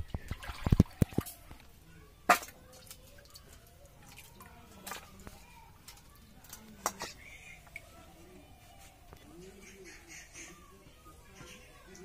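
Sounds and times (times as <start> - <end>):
water sloshing in steel bowls: 0.0 - 9.0.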